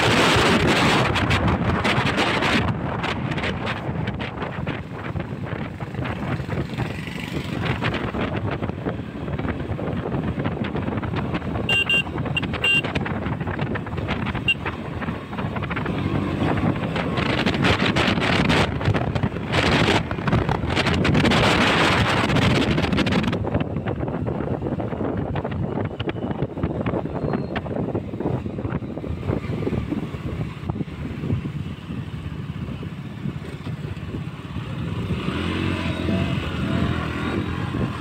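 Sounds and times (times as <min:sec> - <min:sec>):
motorcycle engine running: 0:00.0 - 0:38.0
wind buffeting microphone: 0:00.0 - 0:38.0
short high beeps: 0:11.7 - 0:12.8.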